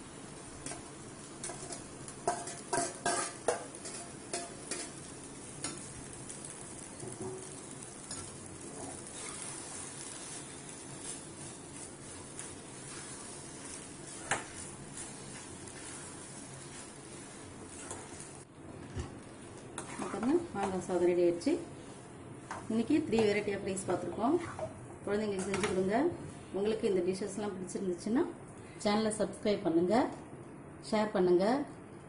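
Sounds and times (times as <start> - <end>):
steady low hiss: 0.0 - 32.0
spoon clinking and scraping a pan: 1.4 - 5.9.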